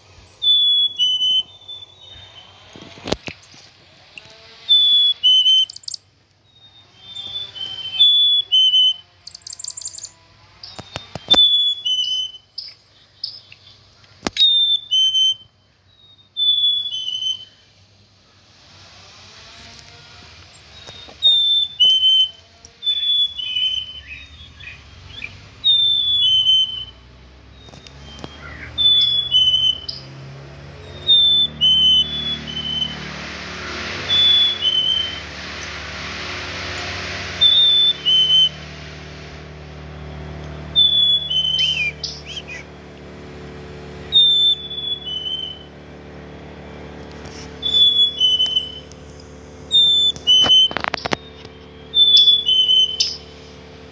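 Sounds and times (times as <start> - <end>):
chickadee two-note whistle song: 20.8 - 30.1, 37.4 - 38.7, 39.9 - 42.7, 44.1 - 45.7, 47.6 - 48.9, 49.7 - 53.3
rushing noise: 28.0 - 45.7.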